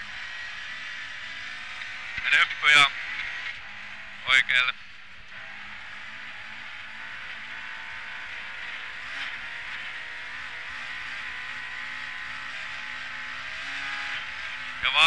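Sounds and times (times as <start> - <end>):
car engine pulling: 0.0 - 15.0.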